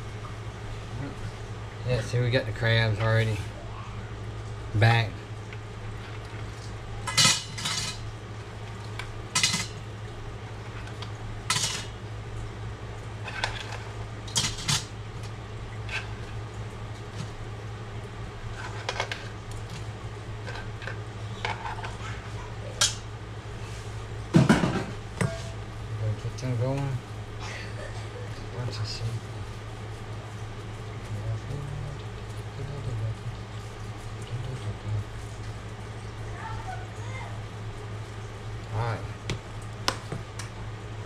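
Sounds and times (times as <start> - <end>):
steady low hum: 0.0 - 41.0
crab shells clinking on metal: 7.1 - 8.0, 9.3 - 9.8, 11.5 - 12.0, 14.3 - 14.9.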